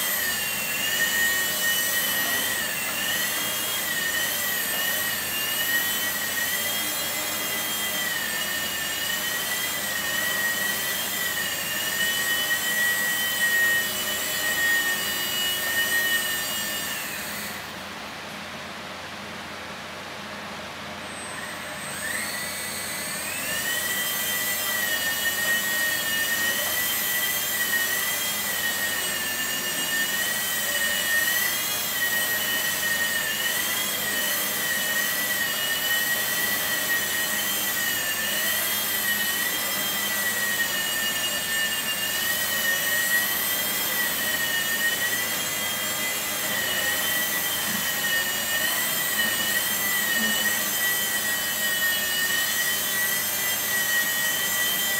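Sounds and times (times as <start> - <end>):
rc helicopter motors whining: 0.0 - 17.8, 21.1 - 54.9.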